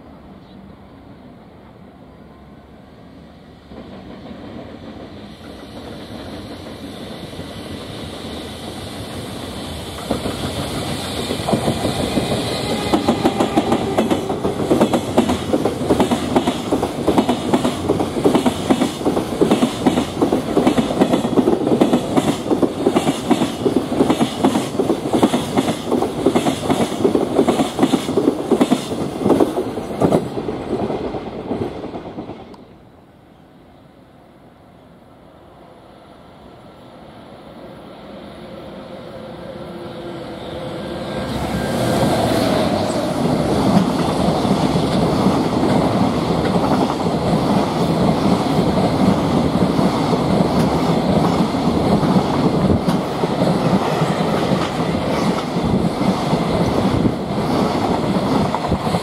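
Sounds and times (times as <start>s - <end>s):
locomotive passing: 1.7s - 32.9s, 37.2s - 59.0s
train wheels clattering over rail joints: 9.9s - 30.8s.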